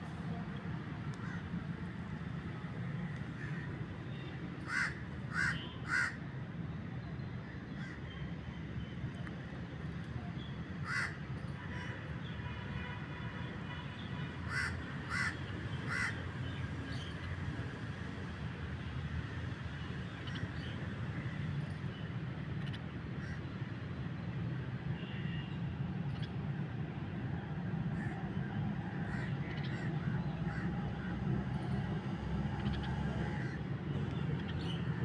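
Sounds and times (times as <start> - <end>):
crow cawing: 1.2 - 1.5, 4.6 - 6.2, 10.8 - 11.2, 14.5 - 16.2.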